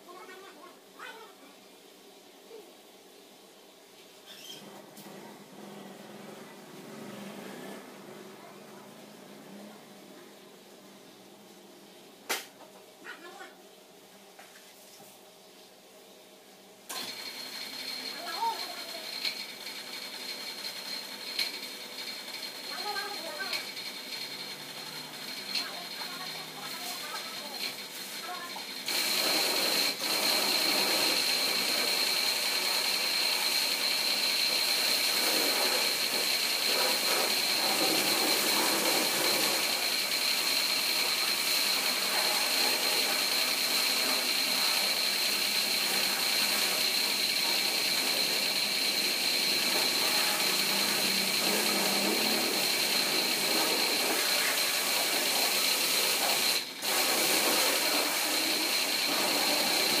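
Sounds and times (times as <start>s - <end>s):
pressure washer whine: 16.9s - 60.0s
water jet spraying: 24.7s - 60.0s.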